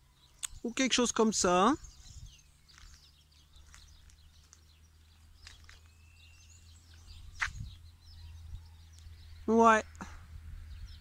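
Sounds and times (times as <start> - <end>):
faint birdsong chirps: 0.0 - 11.0.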